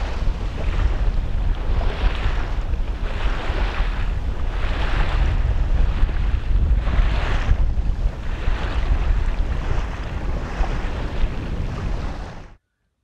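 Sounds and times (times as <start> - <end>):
water rushing past hull: 0.0 - 12.6
wind buffeting microphone: 0.0 - 12.6.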